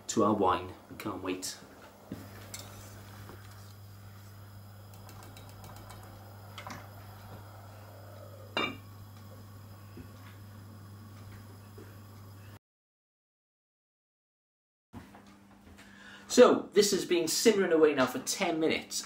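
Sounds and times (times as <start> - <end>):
steady low hum: 0.0 - 12.6
heavy pot lid clanking: 8.5 - 8.8.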